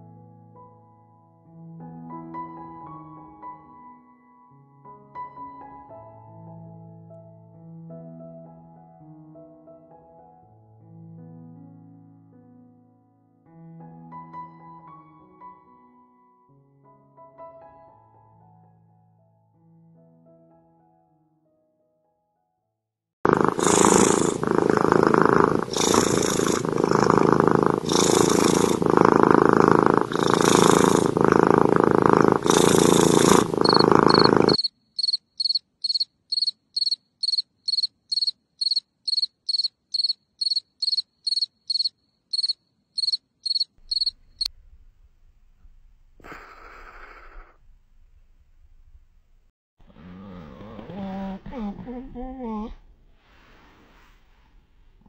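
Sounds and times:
cricket chirping: 0:33.6 - 0:44.5.

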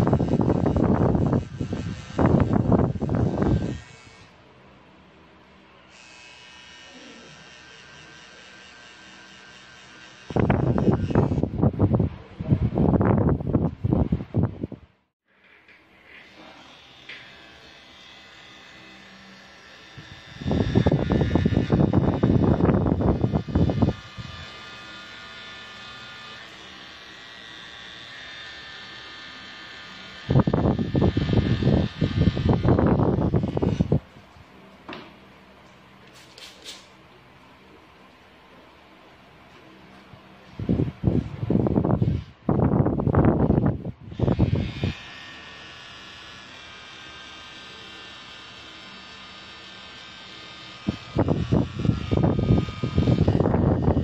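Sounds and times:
tattoo machine buzzing: 0:00.0 - 0:04.4, 0:05.8 - 0:12.0, 0:16.0 - 0:34.1, 0:40.8 - 0:54.0.

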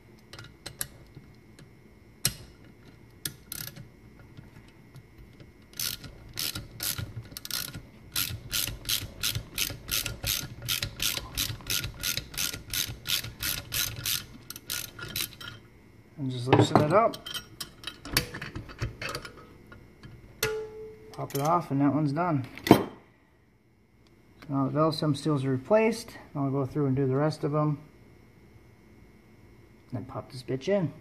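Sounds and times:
ratchet clicks: 0:03.2 - 0:03.9, 0:05.7 - 0:15.6.

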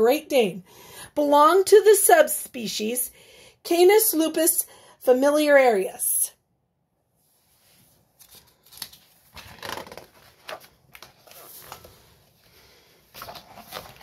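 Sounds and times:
book handling noises: 0:07.6 - 0:14.0
book page turning: 0:07.9 - 0:14.0.

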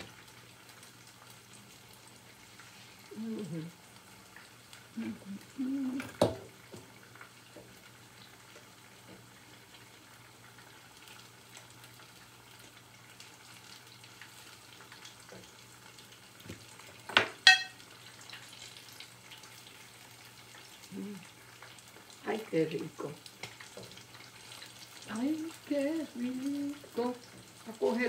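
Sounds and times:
food sizzling in oil: 0:00.0 - 0:28.0
metal utensils clinking: 0:17.4 - 0:17.8.

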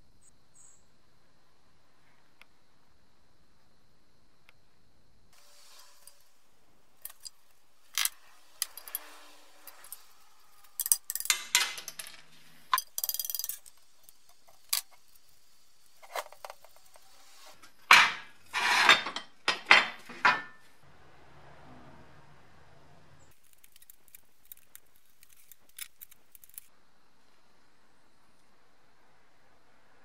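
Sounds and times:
steel parts and tools clanking: 0:07.0 - 0:15.3, 0:17.6 - 0:20.7.

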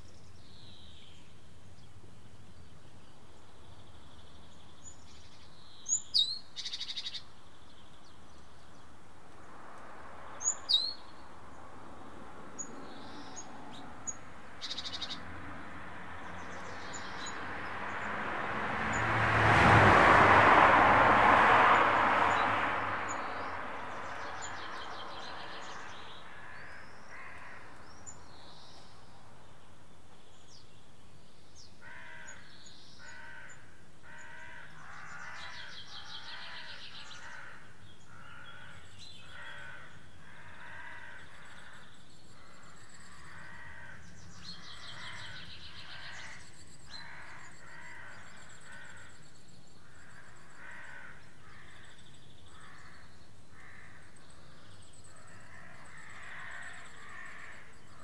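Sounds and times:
crows cawing: 0:25.5 - 0:27.8, 0:31.8 - 0:49.2, 0:49.8 - 0:57.8.

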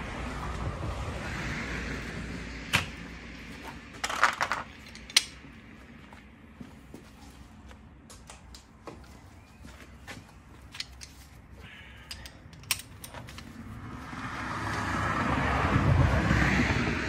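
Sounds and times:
rushing noise with low rumble: 0:00.0 - 0:06.6, 0:12.6 - 0:17.0
lug wrench metallic clicks: 0:10.7 - 0:11.3, 0:12.0 - 0:13.5.

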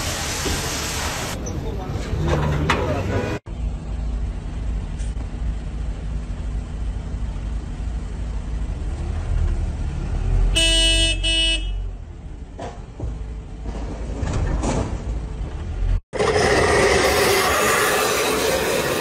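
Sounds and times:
engine rumble: 0:00.6 - 0:19.0
vehicle horn blasts: 0:10.6 - 0:11.9
rough noise: 0:16.0 - 0:19.0.

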